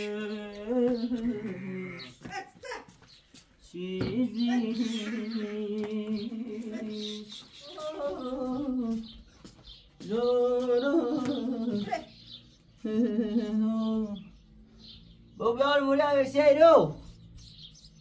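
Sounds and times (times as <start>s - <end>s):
person humming a slow tune: 3.7s - 9.2s, 10.0s - 12.0s, 12.8s - 14.4s.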